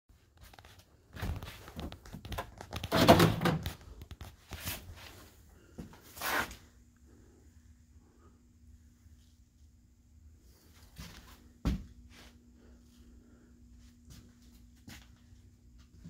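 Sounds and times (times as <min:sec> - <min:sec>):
faint steady hum: 0:00.2 - 0:16.0.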